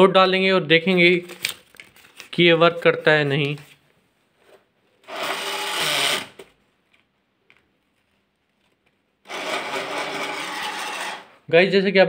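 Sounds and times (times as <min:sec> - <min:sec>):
toy money bank motor whirring: 0:05.1 - 0:06.4, 0:09.3 - 0:11.4.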